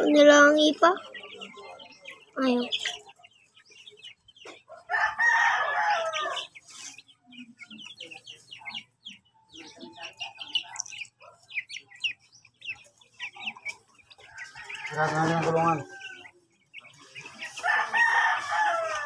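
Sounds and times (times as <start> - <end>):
chicks peeping: 0.0 - 19.0
chicken drawn-out call: 4.7 - 6.6, 17.4 - 19.0.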